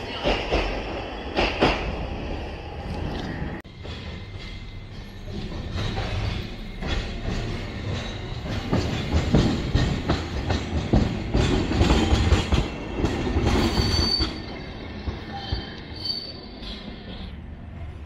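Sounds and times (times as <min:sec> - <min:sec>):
tram wheels clattering over rail joints: 0:00.0 - 0:17.9
high wheel squeal: 0:13.6 - 0:17.0.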